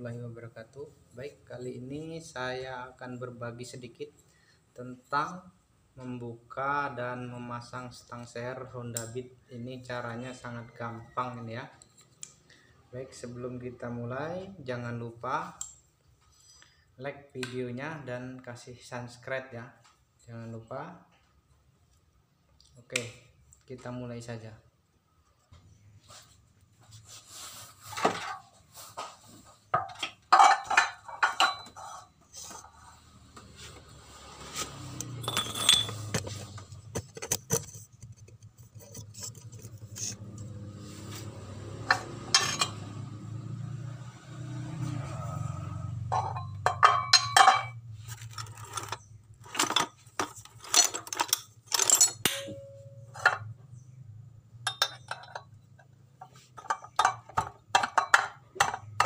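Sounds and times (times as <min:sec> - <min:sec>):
metallic clinks of steel parts: 0:35.0 - 0:36.4, 0:48.3 - 0:53.5
low steady hum: 0:46.1 - 0:55.8.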